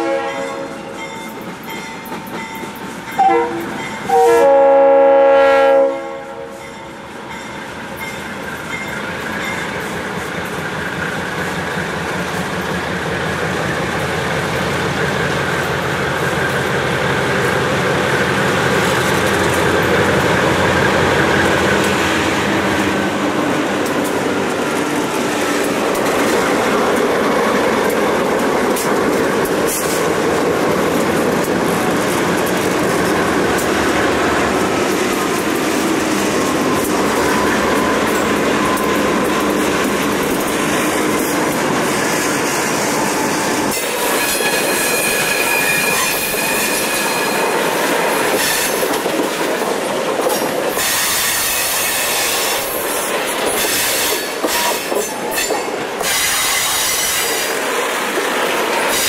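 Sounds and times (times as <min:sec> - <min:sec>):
diesel locomotives working: 0:00.0 - 0:59.0
steel wheels clattering on rails: 0:23.7 - 0:59.0
high wheel squeal: 0:43.8 - 0:47.6.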